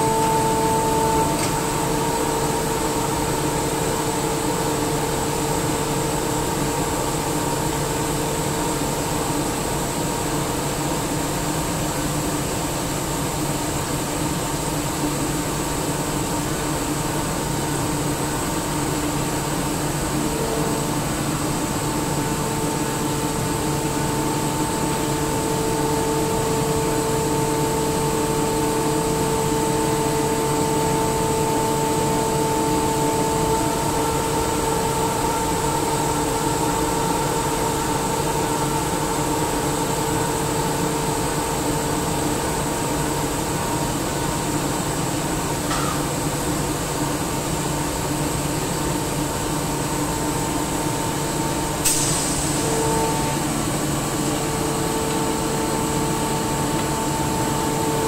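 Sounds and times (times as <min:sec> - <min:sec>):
air compressor humming: 0:00.0 - 0:11.7, 0:13.2 - 0:58.0
compressor whine: 0:00.0 - 0:58.0.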